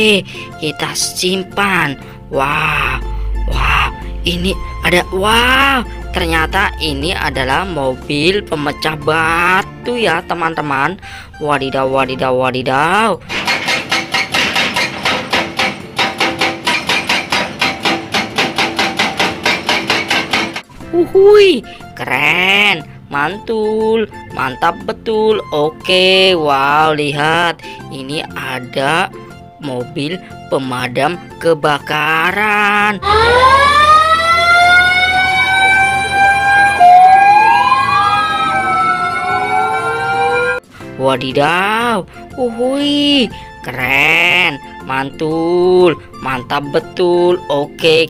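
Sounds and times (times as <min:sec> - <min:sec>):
second siren tone gliding upward: 0:02.8 - 0:08.4, 0:33.0 - 0:40.6
hydraulic breaker hammering rock: 0:13.3 - 0:20.7
fire engine siren wailing: 0:33.0 - 0:40.7.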